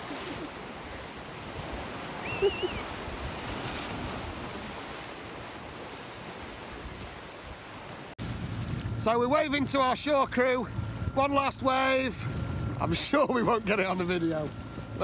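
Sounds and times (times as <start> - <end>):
sea washing against rocks: 0.0 - 8.2
wind buffeting microphone: 0.0 - 15.0
high wavering whistle-like call: 2.2 - 2.9.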